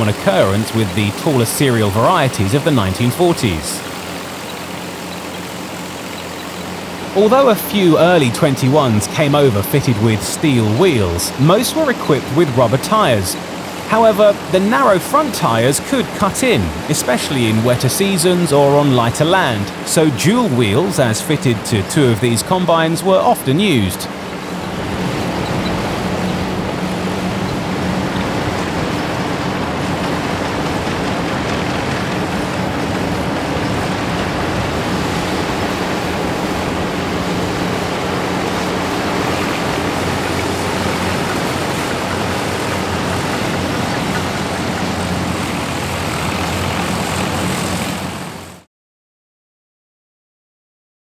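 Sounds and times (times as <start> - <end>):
combine harvesters droning: 0.0 - 48.6.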